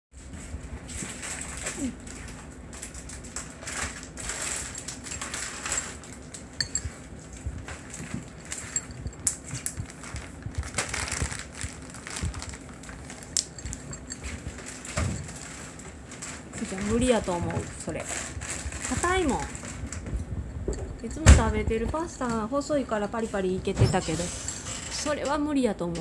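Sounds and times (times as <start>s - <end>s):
cat crunching dry pasta: 1.2s - 6.6s, 7.8s - 17.1s.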